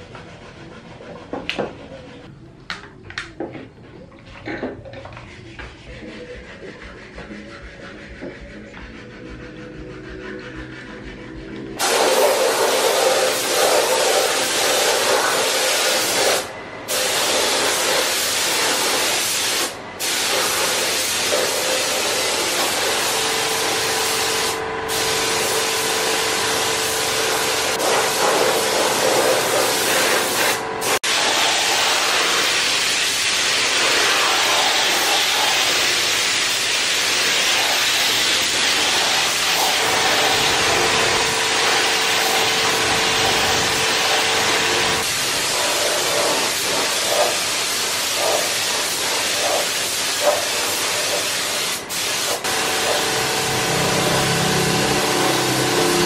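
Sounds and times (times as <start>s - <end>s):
spray gun hissing: 11.8s - 55.8s.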